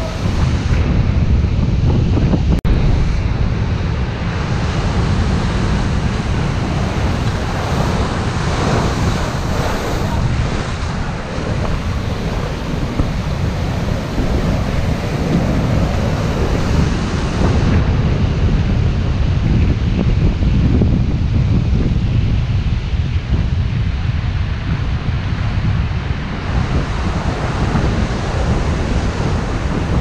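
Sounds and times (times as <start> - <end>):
wind buffeting microphone: 0.0 - 30.0
waves breaking: 4.2 - 17.8.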